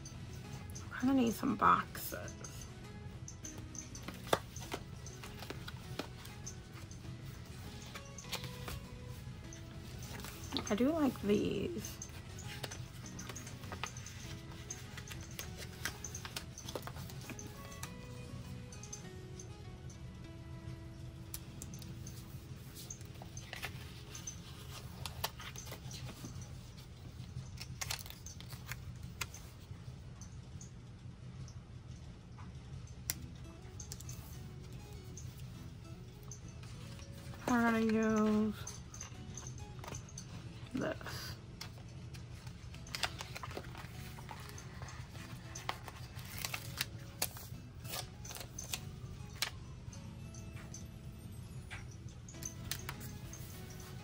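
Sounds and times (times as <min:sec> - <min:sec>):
soft background music: 0:00.0 - 0:54.0
sticker sheets and paper rustling: 0:03.5 - 0:18.2, 0:21.9 - 0:29.6, 0:39.7 - 0:49.6, 0:52.5 - 0:54.0.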